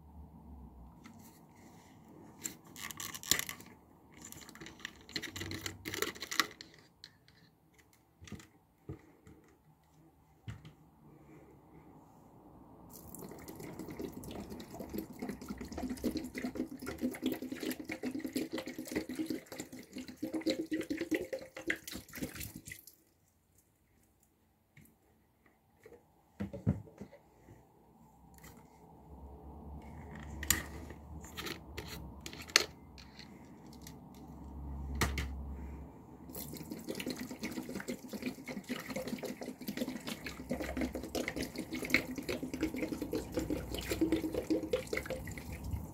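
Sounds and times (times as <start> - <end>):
liquid pouring and splashing: 12.9 - 23.1, 36.3 - 45.9.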